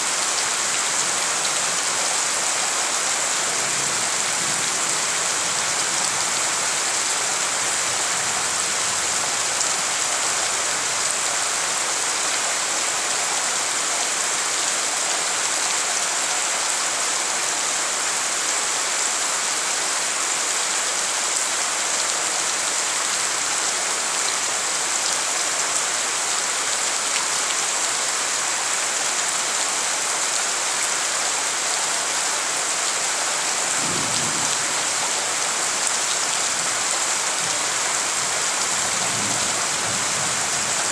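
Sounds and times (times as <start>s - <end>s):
heavy rain on standing water: 0.0s - 40.9s.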